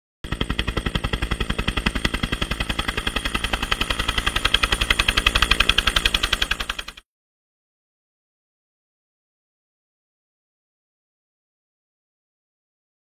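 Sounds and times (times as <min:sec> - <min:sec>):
helicopter rotor blades chopping: 0:00.2 - 0:07.0.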